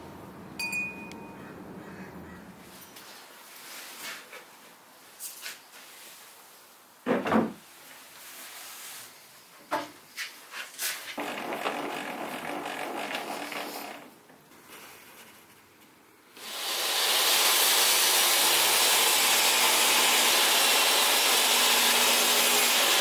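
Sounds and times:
heavy thump of plywood: 7.0 - 7.6
plywood rubbing: 10.6 - 15.6.

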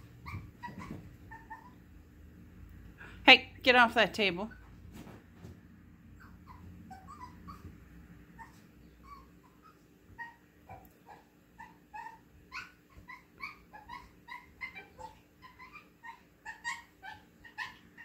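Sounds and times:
small dog whimpering: 0.0 - 1.8, 6.2 - 7.8, 8.4 - 18.0.

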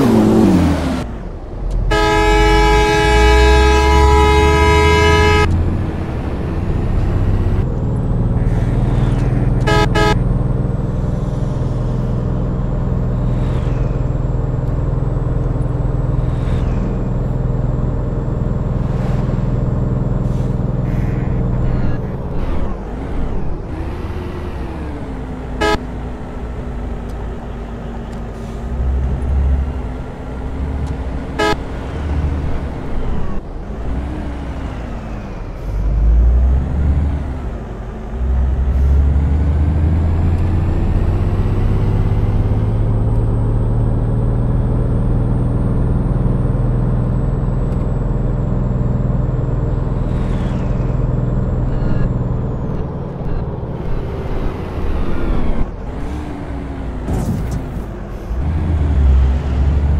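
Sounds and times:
vehicle horn blasting: 1.9 - 5.5, 9.6 - 10.2, 25.6 - 25.9, 31.3 - 31.7
vehicle engine running: 37.4 - 59.9.

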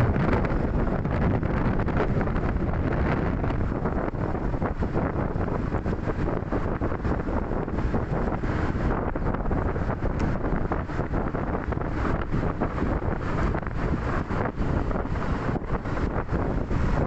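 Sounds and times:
traffic noise: 0.0 - 17.0
wind buffeting microphone: 0.0 - 17.0.

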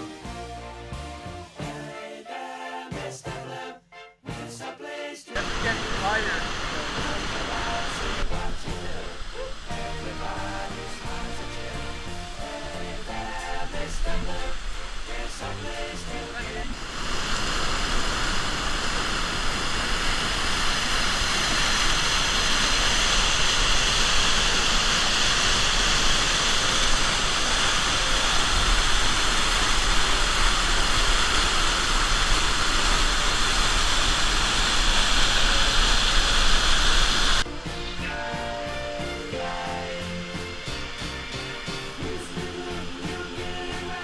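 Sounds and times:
music: 0.0 - 16.8, 37.4 - 44.0
waterfall rushing over rock: 5.4 - 37.5, 38.6 - 44.0.

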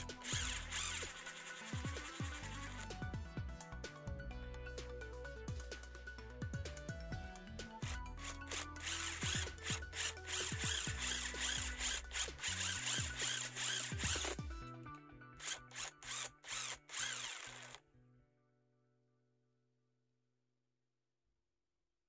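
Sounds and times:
impact driver drilling into wood: 0.0 - 3.0, 7.8 - 14.5, 15.4 - 17.8
background music: 0.0 - 18.6.

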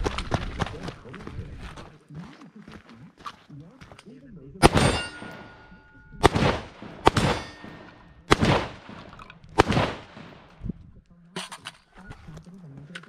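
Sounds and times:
quieter gunshot crack: 4.6 - 10.6
rifle shots with echo: 4.6 - 10.7.

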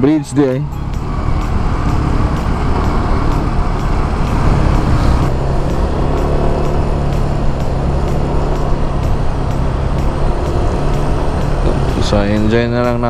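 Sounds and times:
motorcycle engine running: 0.0 - 13.0
wind and road noise: 0.0 - 13.0.

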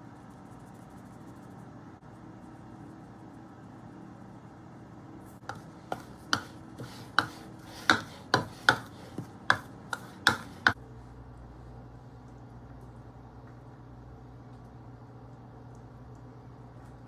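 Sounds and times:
spatula scraping and tapping bowl: 5.4 - 10.8.

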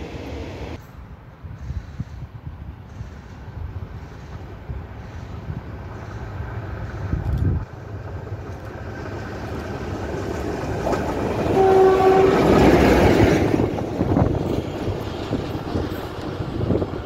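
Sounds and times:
diesel locomotive passing: 0.0 - 17.0
locomotive horn blast: 11.4 - 12.8.

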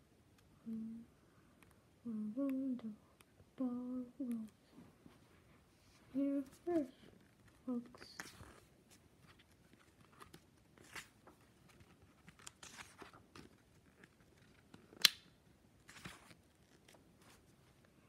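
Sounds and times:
book pages rustling: 4.8 - 15.1, 15.8 - 18.0.

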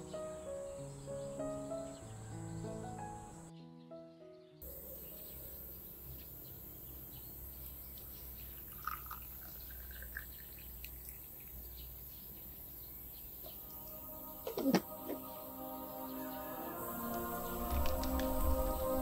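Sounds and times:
soft music: 0.0 - 7.7, 13.5 - 19.0
birds chirping: 0.0 - 19.0
tea trickling into a cup: 8.5 - 11.7.

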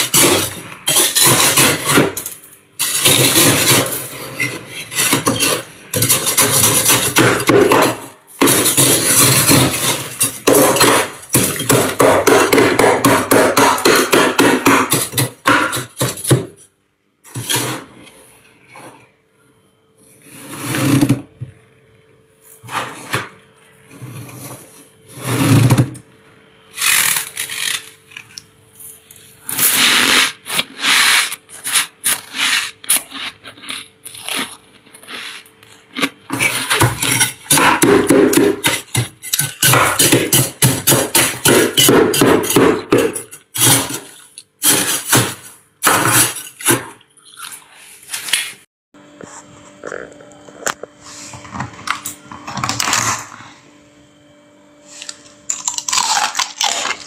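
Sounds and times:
frost crunching: 55.0 - 57.0.

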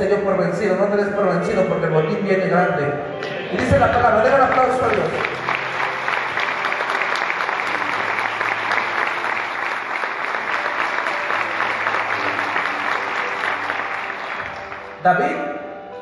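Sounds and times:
crowd applauding: 3.2 - 15.0.

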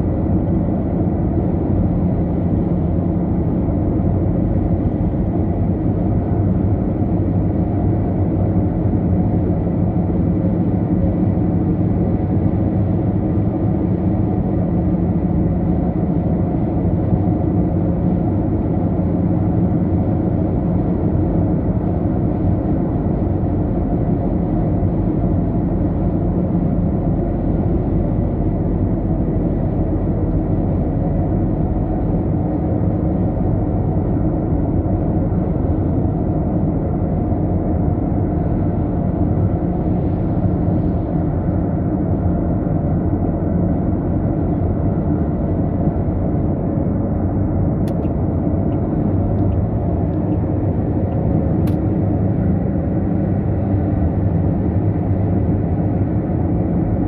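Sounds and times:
car cruising road and engine noise: 0.0 - 57.0.

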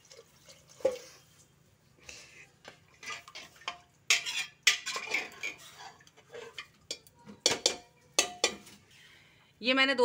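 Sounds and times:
water pouring into pot: 0.0 - 1.4
steel bowl clinking against pot: 3.1 - 8.7.

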